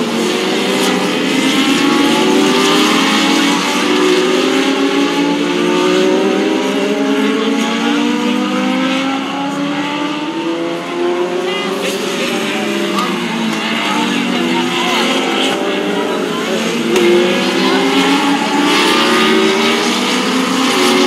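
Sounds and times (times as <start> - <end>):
race car engines accelerating: 0.0 - 21.0.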